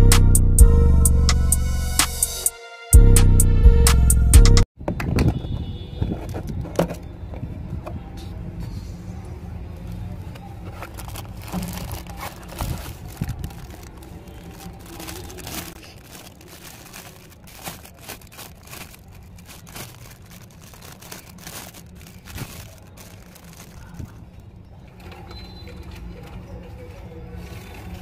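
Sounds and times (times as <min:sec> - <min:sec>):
plastic bag crinkling: 0:10.2 - 0:25.1.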